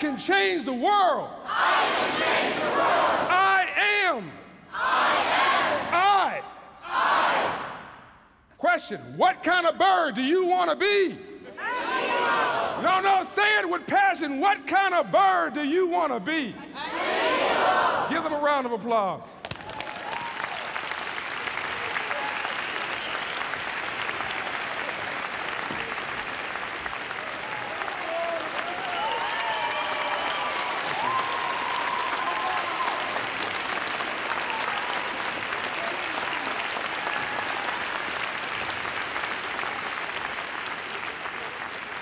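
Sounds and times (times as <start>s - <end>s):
audience applauding: 19.4s - 42.0s.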